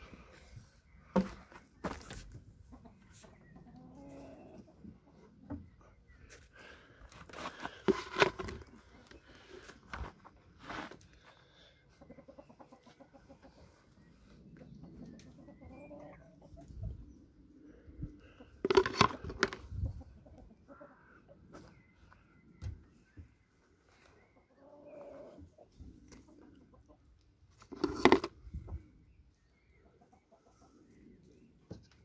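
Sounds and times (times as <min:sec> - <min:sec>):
chickens clucking: 0:00.1 - 0:06.5, 0:11.2 - 0:32.0.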